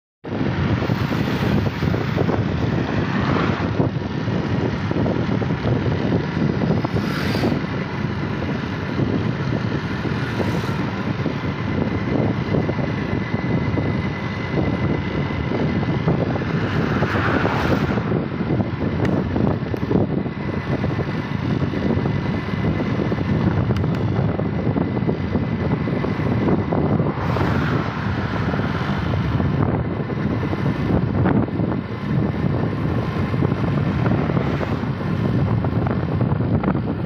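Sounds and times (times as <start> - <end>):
wind rushing over microphone: 0.2 - 37.0
motorbike engine running: 0.3 - 37.0
car passing by: 3.0 - 3.7, 16.5 - 18.1.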